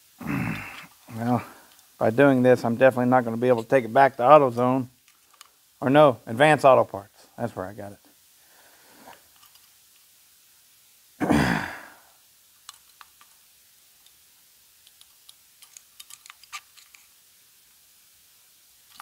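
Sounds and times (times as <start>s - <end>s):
man sighing: 0.2s - 1.7s, 11.2s - 12.1s
small irregular clicks: 4.6s - 5.7s, 9.0s - 10.1s, 12.6s - 17.8s.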